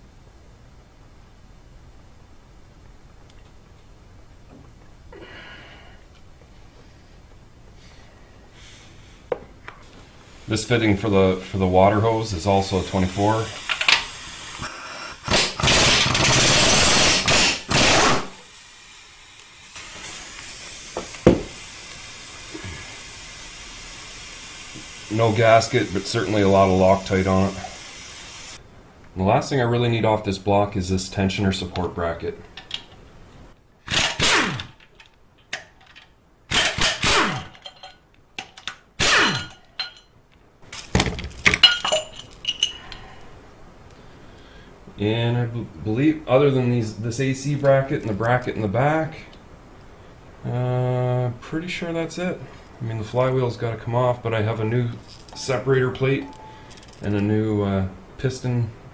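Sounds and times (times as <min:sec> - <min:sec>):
air impact wrench hammering: 0:13.5 - 0:23.0, 0:33.9 - 0:34.7, 0:36.5 - 0:37.7, 0:39.0 - 0:40.0
power ratchet running: 0:15.3 - 0:22.3, 0:36.5 - 0:37.5
metal bolts clinking: 0:34.8 - 0:42.9.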